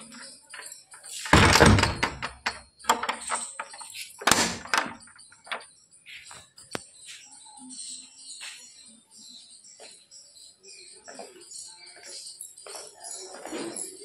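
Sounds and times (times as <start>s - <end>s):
wooden door thudding shut: 1.3s - 3.4s, 4.2s - 5.1s
metal slide bolt clanking: 1.3s - 5.1s.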